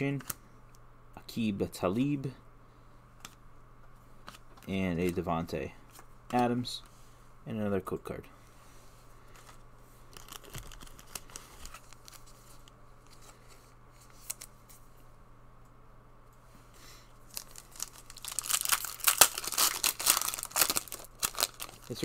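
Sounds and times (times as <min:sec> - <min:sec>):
foil wrapper crinkling and tearing: 0:10.1 - 0:12.3, 0:17.3 - 0:22.0.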